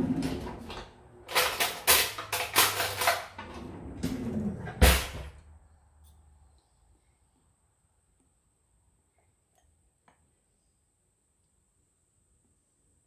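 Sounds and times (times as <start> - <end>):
metal cutlery clattering: 0.3 - 3.6.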